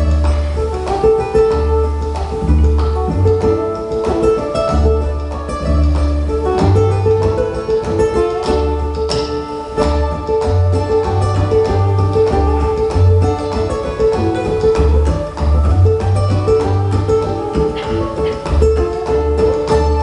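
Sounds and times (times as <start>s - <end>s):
cello low notes: 0.0s - 20.0s
ukulele picking a tune: 0.0s - 20.0s.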